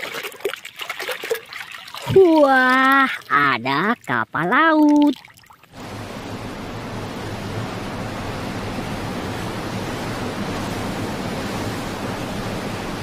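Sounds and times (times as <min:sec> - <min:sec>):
wind and sea rushing: 0:05.7 - 0:13.0.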